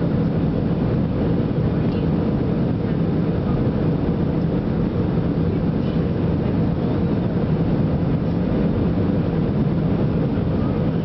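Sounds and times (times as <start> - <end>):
airliner cabin engine noise: 0.0 - 11.0
faint steady hum: 0.0 - 11.0.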